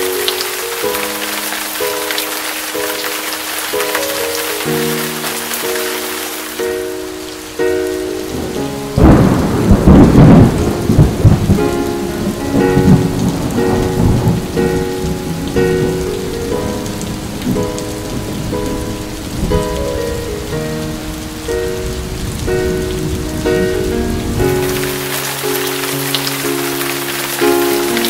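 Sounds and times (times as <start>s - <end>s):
heavy rain falling: 0.0s - 28.0s
soft music of held notes: 0.0s - 28.0s
thunder rumbling: 8.2s - 28.0s.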